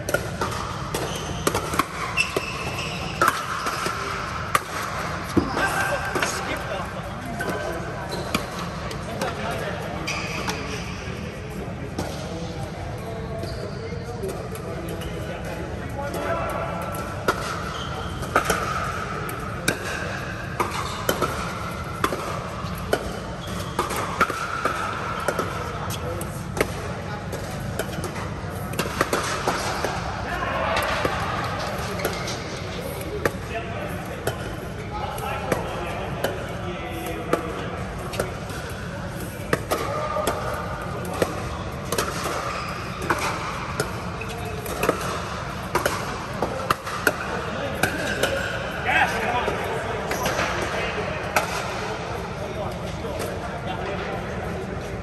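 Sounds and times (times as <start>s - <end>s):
voices talking: 1.7s - 10.9s.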